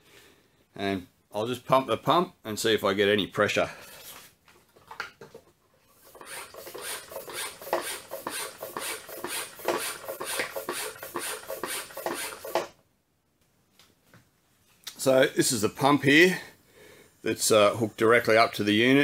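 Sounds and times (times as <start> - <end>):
hand pump strokes rasping: 6.0 - 12.7.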